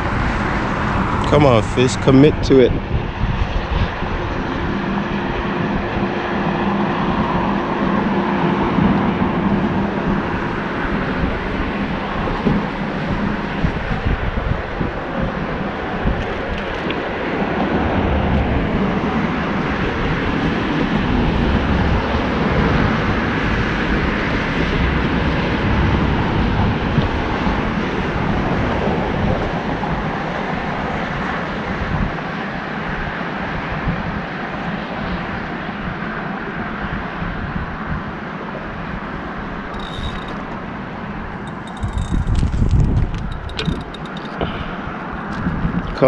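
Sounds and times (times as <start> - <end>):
wind buffeting microphone: 0.0 - 46.0.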